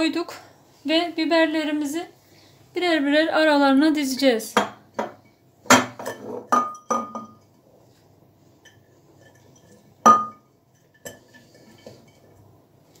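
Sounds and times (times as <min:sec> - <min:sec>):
glass jar clinking: 0:05.7 - 0:07.5, 0:09.2 - 0:11.3.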